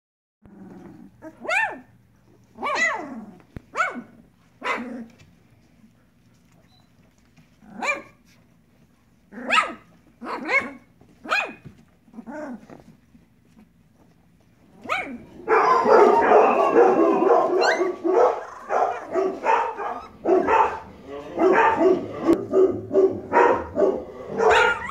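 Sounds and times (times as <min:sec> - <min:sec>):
puppies yelping: 0:02.6 - 0:05.0, 0:14.8 - 0:24.9.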